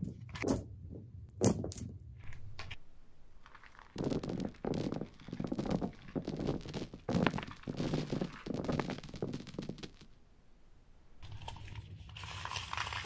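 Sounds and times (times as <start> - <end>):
coins clattering onto carpet: 3.5 - 10.2.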